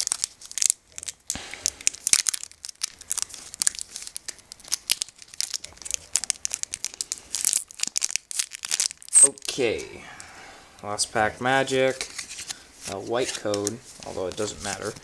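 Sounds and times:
foil wrapper crinkling and tearing: 0.0s - 9.6s, 11.9s - 15.0s.

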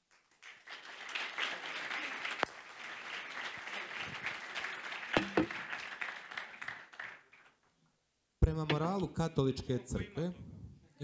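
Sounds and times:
audience applauding: 0.0s - 7.5s.

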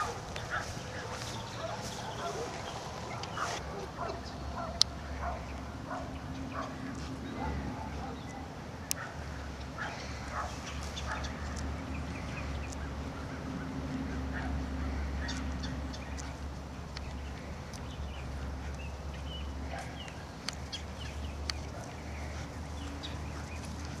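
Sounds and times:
sharp clicks: 19.8s - 22.0s.

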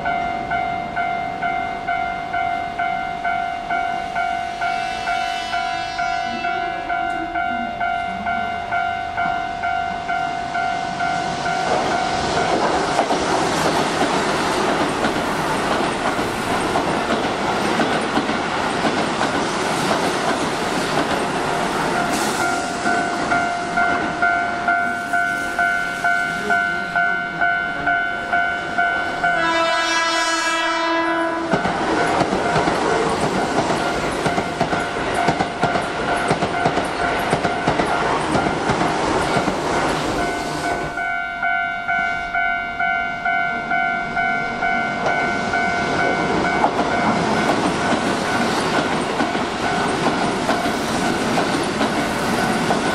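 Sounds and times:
level crossing bell ringing: 0.0s - 12.6s, 21.9s - 29.8s, 39.8s - 48.5s
train horn: 4.4s - 8.7s, 29.2s - 31.7s
train wheels clattering: 11.2s - 24.2s, 31.4s - 41.1s, 45.0s - 52.9s.

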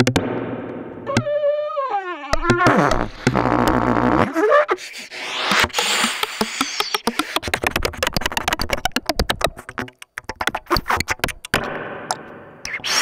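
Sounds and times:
rapid clicks and stuttering pops: 2.3s - 4.3s, 5.2s - 11.8s.

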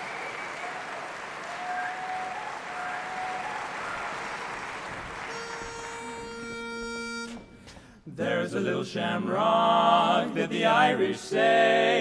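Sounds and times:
whistles: 0.0s - 4.6s
audience applauding: 0.0s - 6.4s
pitch pipe note: 5.3s - 7.8s.

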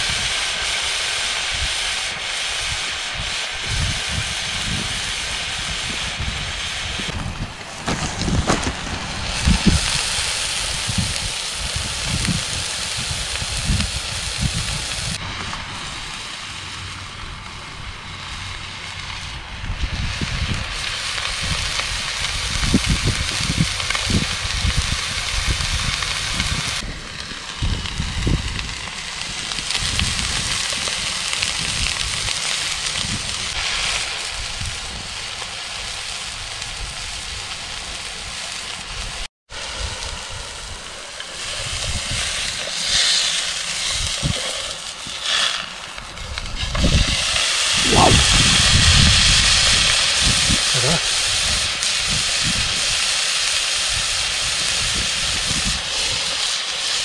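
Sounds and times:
wind rumbling on microphone: 2.5s - 53.1s, 53.8s - 56.5s
steak sizzling in a frying pan: 9.0s - 16.9s, 19.8s - 57.0s.

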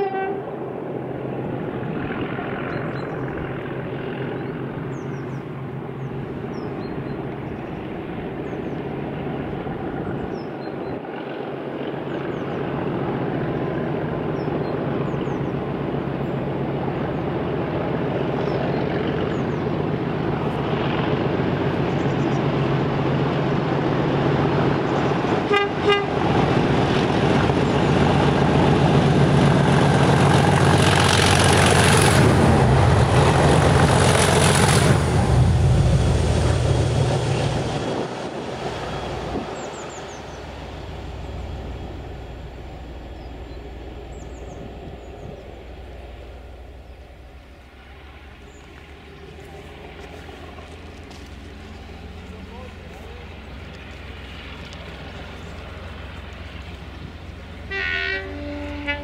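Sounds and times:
locomotive horn blast: 0.0s - 0.6s, 25.4s - 26.5s, 57.6s - 59.0s
diesel locomotive engine drone: 0.0s - 59.0s.

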